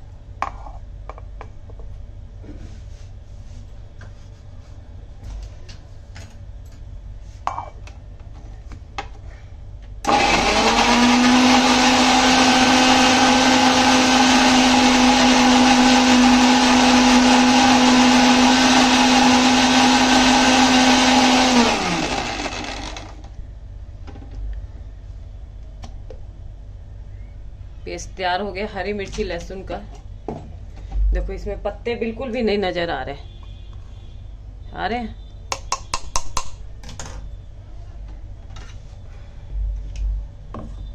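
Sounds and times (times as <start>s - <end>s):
mixer grinder motor running: 10.0s - 23.3s.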